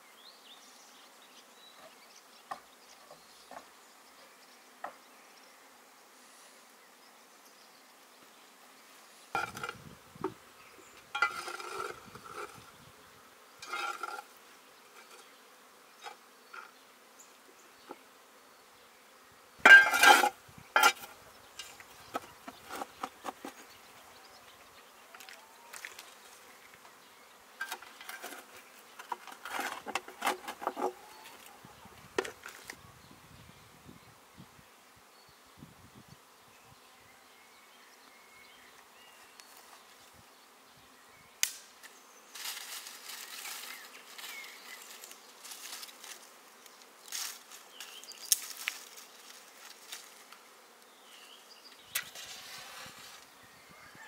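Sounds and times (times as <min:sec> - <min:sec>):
insects buzzing: 0:00.0 - 0:54.0
clattering and handling noise: 0:13.6 - 0:14.3, 0:19.7 - 0:23.8, 0:27.6 - 0:31.6.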